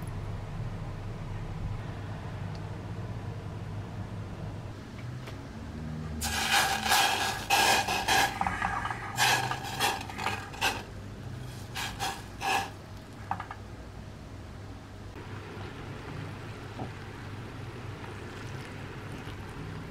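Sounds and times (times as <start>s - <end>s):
wooden spatula scraping a saucepan: 6.2s - 13.4s.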